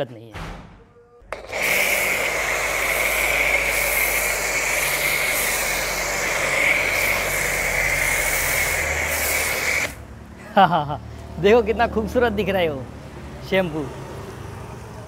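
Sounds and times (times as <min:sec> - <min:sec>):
pressure washer spray hissing: 0:01.3 - 0:10.0
washer motor humming: 0:01.3 - 0:10.0.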